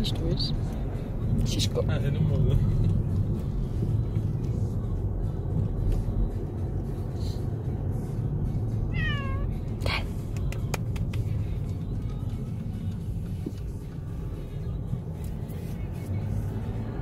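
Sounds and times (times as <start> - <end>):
low rumble of moving car: 0.0 - 17.0
cat meowing: 8.9 - 9.6.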